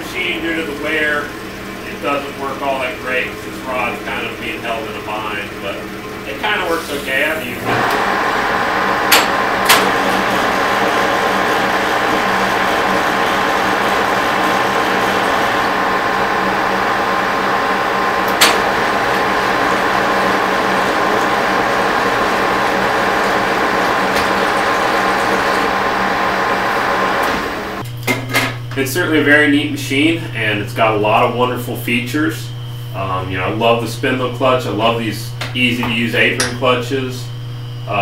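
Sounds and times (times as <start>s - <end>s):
lathe running: 0.0s - 27.8s.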